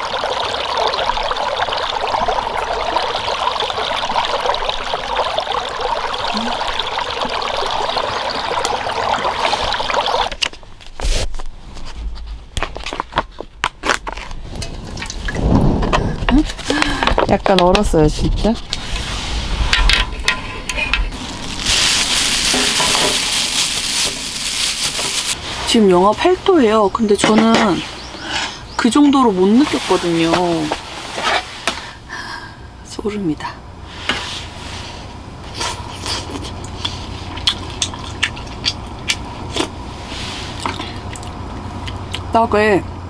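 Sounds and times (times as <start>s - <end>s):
loud hissing crackling: 21.1s - 25.4s
person sipping and chewing: 35.5s - 42.2s.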